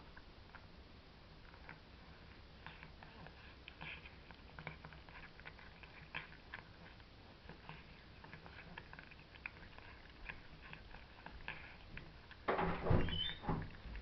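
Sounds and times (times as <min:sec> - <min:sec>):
cat chewing food: 0:00.0 - 0:14.0.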